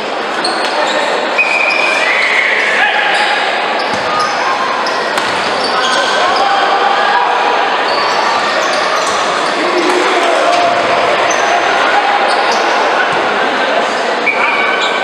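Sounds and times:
crowd voices hubbub: 0.0s - 15.0s
shoes squeaking on court: 3.8s - 6.4s.

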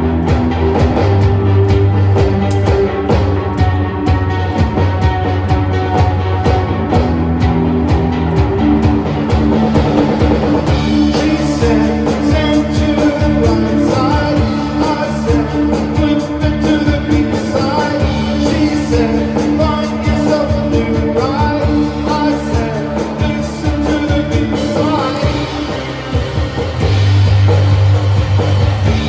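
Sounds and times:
held bass notes: 0.0s - 29.0s
reverb-heavy electric guitar: 0.0s - 29.0s
steady drum beat: 0.0s - 29.0s
person singing: 10.9s - 26.1s.

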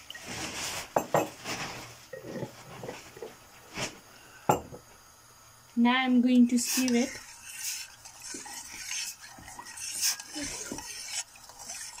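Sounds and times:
metal spoon stirring in saucepan: 6.3s - 12.0s.

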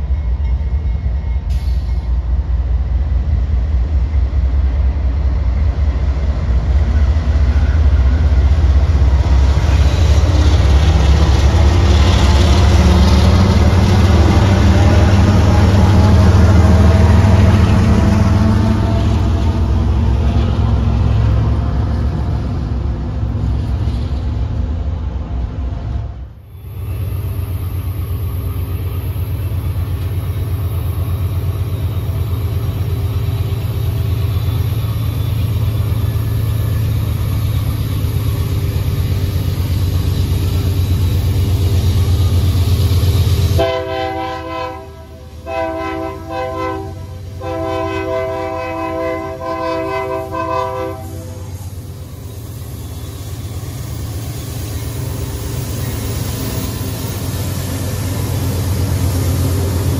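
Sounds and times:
diesel locomotives rumbling: 0.0s - 59.9s
locomotive horn chord: 43.6s - 51.5s.

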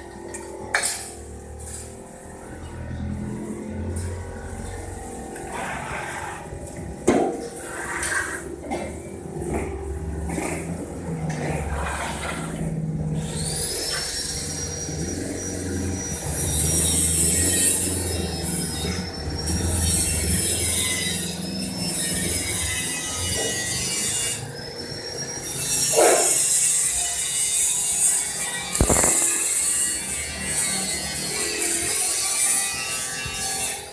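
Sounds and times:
power tool whine: 10.3s - 33.9s.

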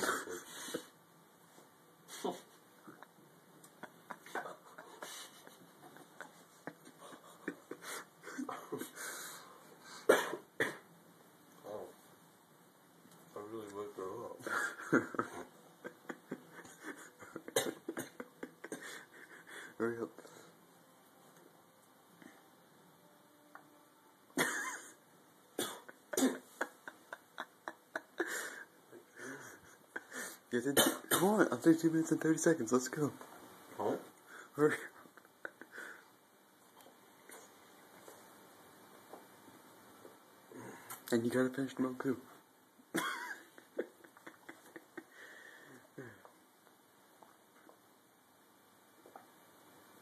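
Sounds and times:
heavy nasal breathing: 4.5s - 5.6s, 7.0s - 10.1s
person coughing: 10.1s - 10.8s, 17.4s - 18.2s, 25.6s - 26.5s, 30.8s - 31.4s.

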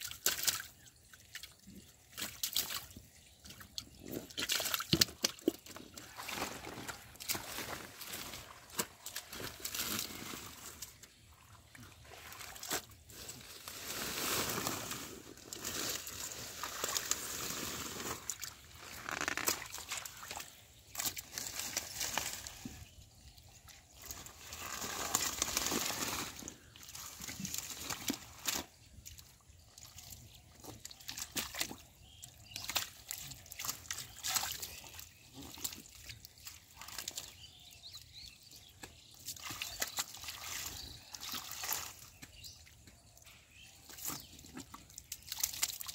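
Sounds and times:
hands squelching in wet mud: 0.0s - 22.7s, 23.8s - 43.2s, 43.8s - 45.9s
leaves and stems rustling: 6.0s - 11.0s, 12.2s - 22.8s, 24.0s - 28.7s.

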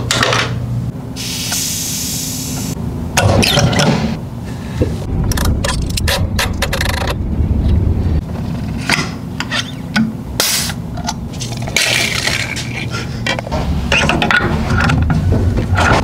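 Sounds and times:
metal parts clicking and scraping: 5.2s - 7.2s.

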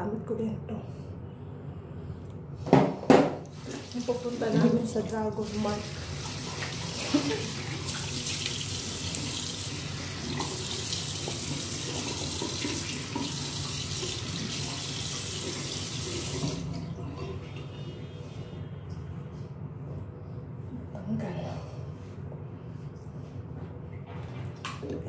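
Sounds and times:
sink tap running: 3.4s - 16.8s.

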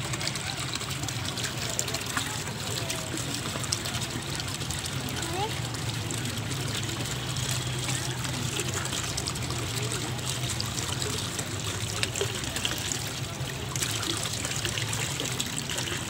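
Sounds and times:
fountain jet splashing: 0.0s - 16.0s.

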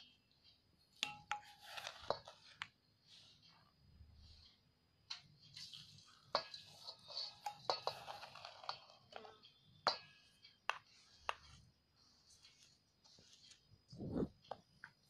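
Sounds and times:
steel cup tapping bowl: 1.0s - 2.3s, 6.3s - 11.5s.

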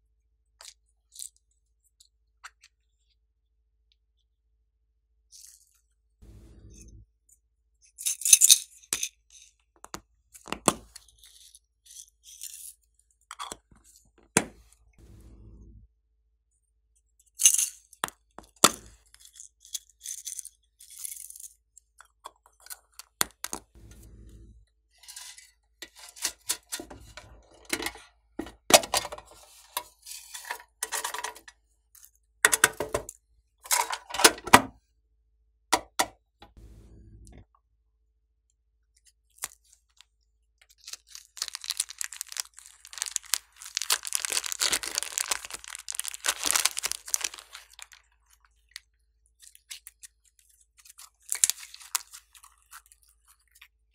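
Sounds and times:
sequins rattling in plastic cups: 40.8s - 48.1s.

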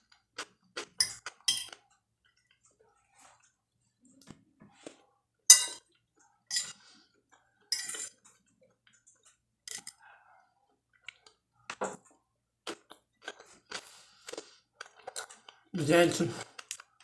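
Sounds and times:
chewing: 0.1s - 5.1s, 5.9s - 15.7s, 16.4s - 17.0s
fork scraping on a glass plate: 7.7s - 8.2s.

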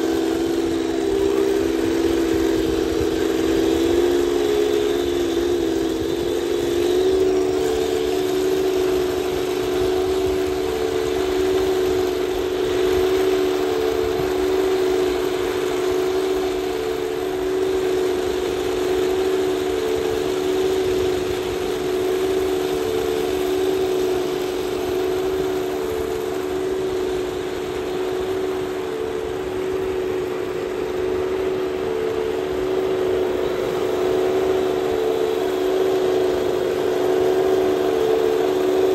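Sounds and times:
simulated tank engine: 0.0s - 38.9s
steady hiss: 0.0s - 38.9s.

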